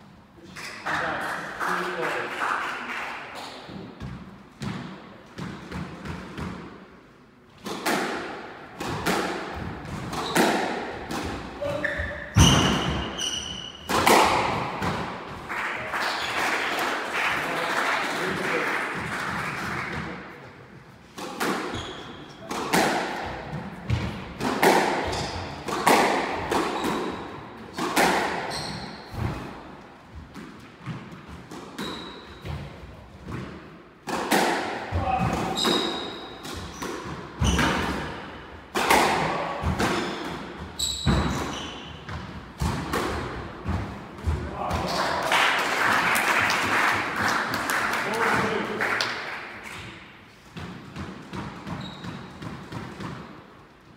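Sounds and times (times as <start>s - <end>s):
shoes squeaking on wooden floor: 11.6s - 13.9s, 21.7s - 22.3s, 28.5s - 29.1s, 31.8s - 32.4s, 40.0s - 41.9s, 51.7s - 52.4s.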